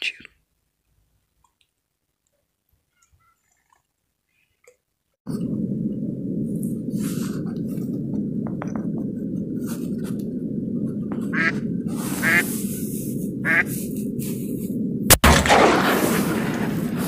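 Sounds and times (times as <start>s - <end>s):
low rushing microphone noise: 5.3s - 17.0s
duck quacking: 11.3s - 11.6s, 12.2s - 12.4s, 13.4s - 13.7s.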